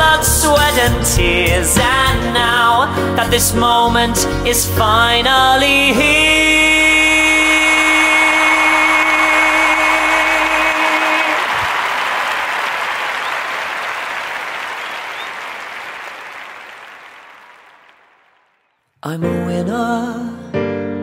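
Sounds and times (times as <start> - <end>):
applause: 8.1 - 18.8.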